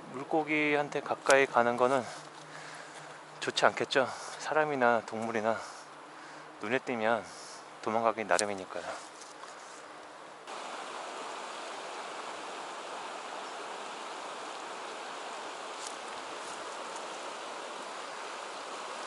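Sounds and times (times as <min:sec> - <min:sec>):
river rushing over rocks: 0:10.4 - 0:19.0.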